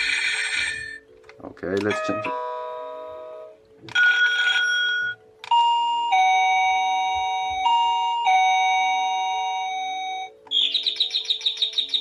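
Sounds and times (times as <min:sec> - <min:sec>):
doorbell chime: 0:01.9 - 0:10.4.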